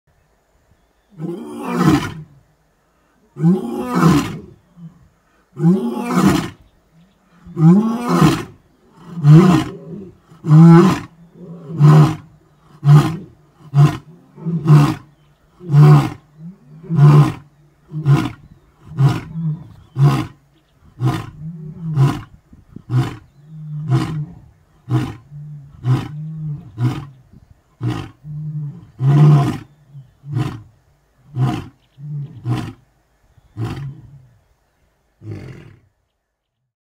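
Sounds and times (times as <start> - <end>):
lion roaring: 7.4 - 20.4, 22.9 - 27.2.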